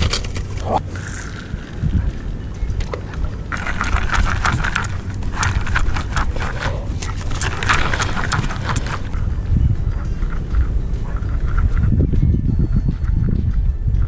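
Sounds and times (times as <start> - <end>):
fishing reel clicking: 0.9 - 2.3, 3.1 - 9.2.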